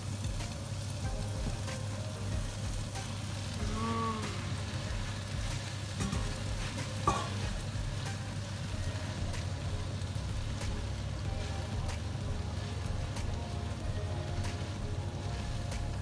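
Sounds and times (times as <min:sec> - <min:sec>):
sauce sizzling in frying pan: 0:00.0 - 0:16.0.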